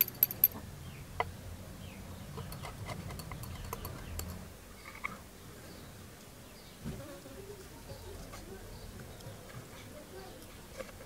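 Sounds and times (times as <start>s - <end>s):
rod clinking on glass: 0.0s - 0.6s, 2.5s - 4.4s.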